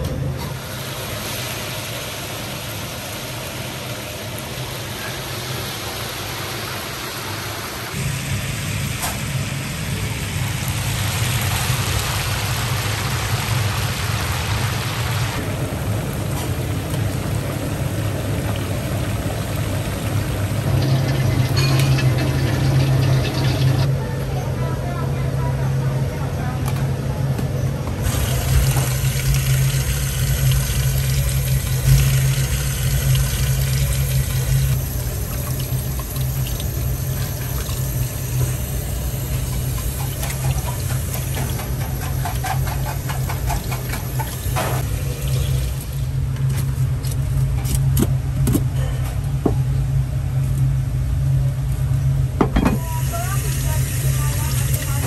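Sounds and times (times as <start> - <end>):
low hum: 15.0 - 25.6.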